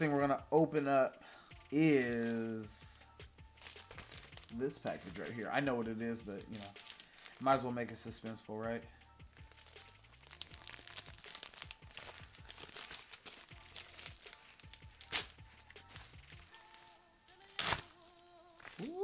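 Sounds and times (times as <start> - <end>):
packaging crinkling and tearing: 3.6 - 5.3, 6.4 - 7.6, 9.5 - 19.0.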